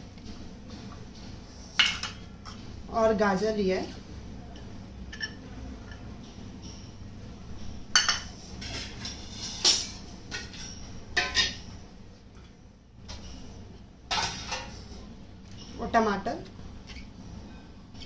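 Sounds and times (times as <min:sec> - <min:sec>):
kitchen utensils clinking: 0:07.9 - 0:11.7, 0:14.1 - 0:14.8.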